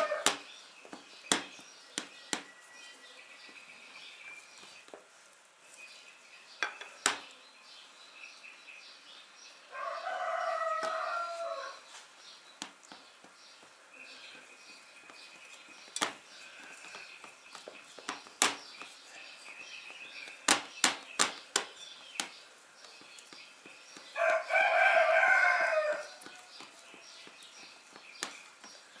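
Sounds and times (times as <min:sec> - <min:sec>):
rooster crowing: 0:00.0 - 0:00.3, 0:09.7 - 0:11.8, 0:24.2 - 0:26.6.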